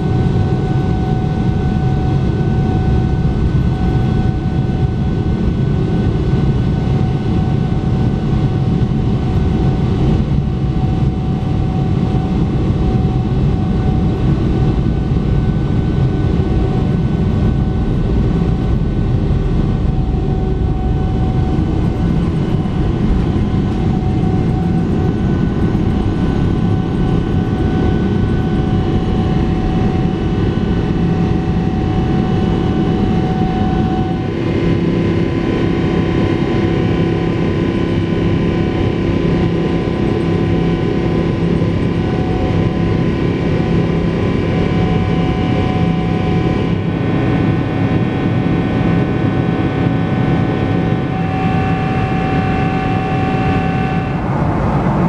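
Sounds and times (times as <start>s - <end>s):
jet engines at takeoff thrust: 0.0s - 55.0s.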